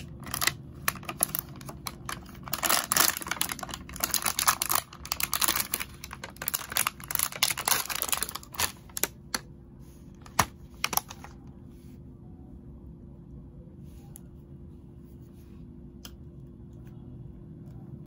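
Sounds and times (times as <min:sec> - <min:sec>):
plastic box crackling and clicking: 0:00.0 - 0:09.4, 0:10.2 - 0:11.4.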